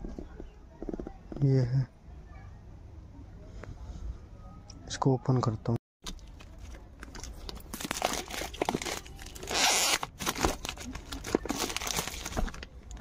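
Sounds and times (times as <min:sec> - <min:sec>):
plastic shrink-wrap tearing: 0:06.4 - 0:13.0.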